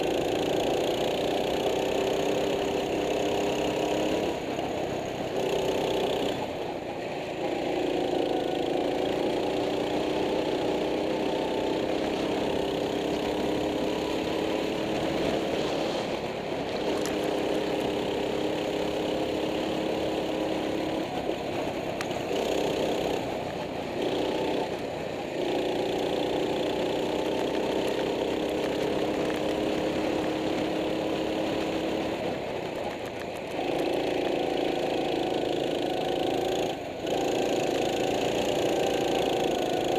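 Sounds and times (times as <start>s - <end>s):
go-kart engine: 0.0s - 39.9s.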